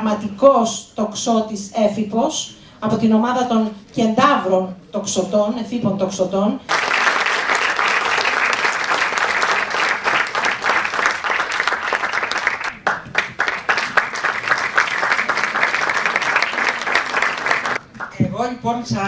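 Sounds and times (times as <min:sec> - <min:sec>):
audience applauding: 0:06.7 - 0:18.1.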